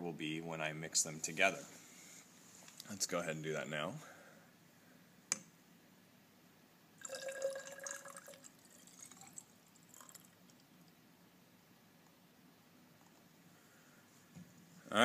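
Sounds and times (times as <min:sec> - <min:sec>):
liquid pouring: 0:07.0 - 0:10.7
liquid dribbling and dripping: 0:07.0 - 0:11.0.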